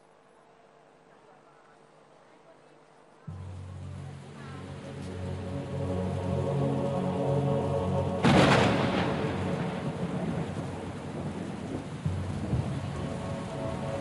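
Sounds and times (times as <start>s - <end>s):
low held music chord: 3.2s - 14.0s
thunder-like crash: 8.2s - 14.0s.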